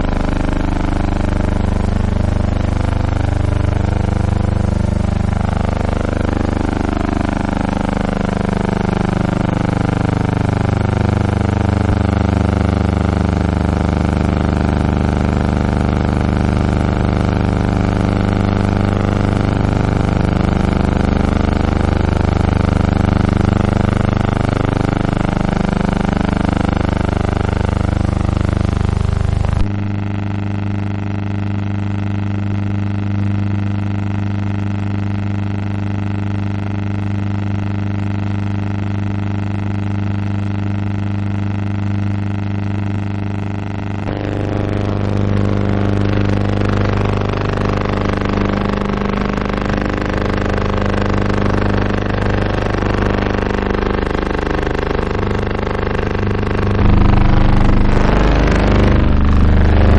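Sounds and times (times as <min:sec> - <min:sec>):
droning hum: 0:00.0 - 0:07.3, 0:09.2 - 0:14.2, 0:15.4 - 0:16.2, 0:39.7 - 0:59.9.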